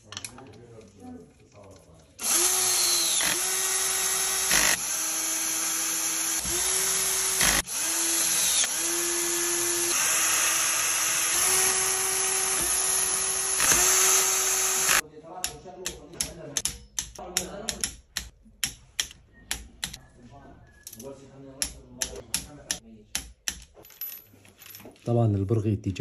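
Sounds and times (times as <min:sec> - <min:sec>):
drill click: 0:02.2 - 0:15.0
power drill whining: 0:02.2 - 0:15.0.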